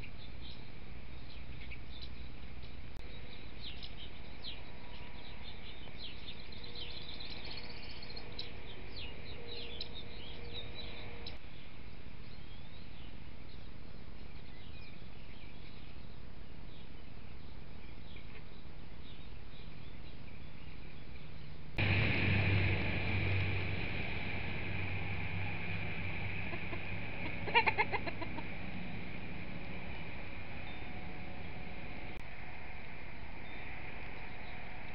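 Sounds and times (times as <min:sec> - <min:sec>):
chicken clucking: 0:26.5 - 0:28.5.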